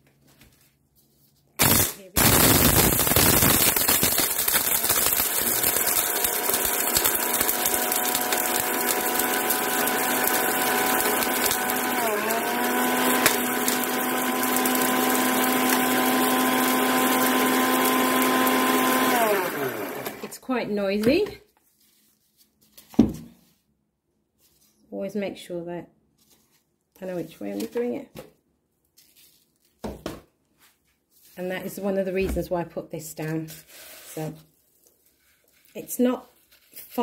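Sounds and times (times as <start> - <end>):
food processor grinding shells: 1.6 - 20.4.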